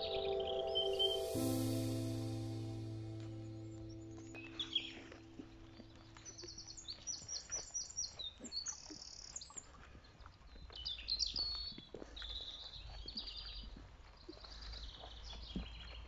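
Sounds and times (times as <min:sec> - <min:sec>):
low rumble: 0:00.0 - 0:06.2
faint footsteps: 0:00.0 - 0:09.0.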